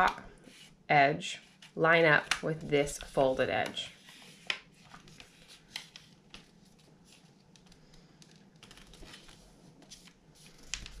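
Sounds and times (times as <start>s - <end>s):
paper rustling and crinkling: 4.0s - 11.0s.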